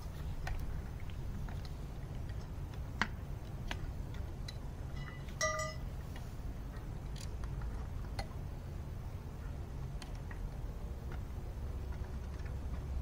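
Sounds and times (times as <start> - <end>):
steady low rumble: 0.0 - 13.0
light clicks and clinks of tubes: 3.0 - 8.2
brief ringing note: 5.0 - 5.8.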